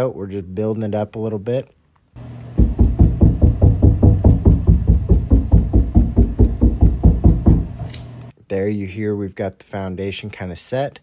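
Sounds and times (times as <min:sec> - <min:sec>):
gloved hand knocking rapidly: 0:02.6 - 0:07.8.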